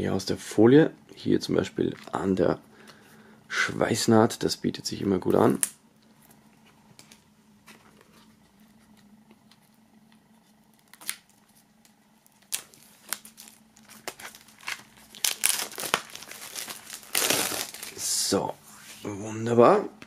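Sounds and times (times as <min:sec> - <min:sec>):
plastic wrap crinkling: 0:05.4 - 0:18.4.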